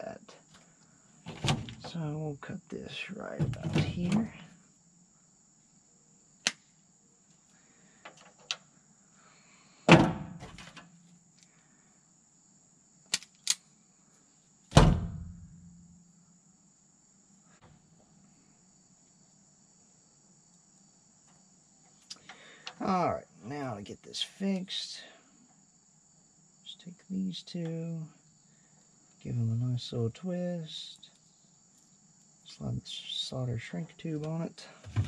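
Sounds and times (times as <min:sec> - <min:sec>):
crickets chirring: 0:00.0 - 0:35.0.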